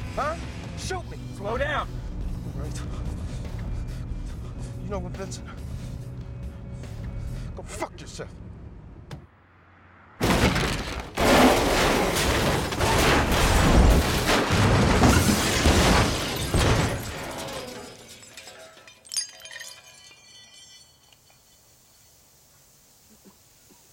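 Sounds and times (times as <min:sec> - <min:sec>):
car crashing and rolling over: 0:10.2 - 0:19.0
crunching metal: 0:10.2 - 0:21.7
debris clattering: 0:10.2 - 0:21.7
shattering glass: 0:10.2 - 0:21.7.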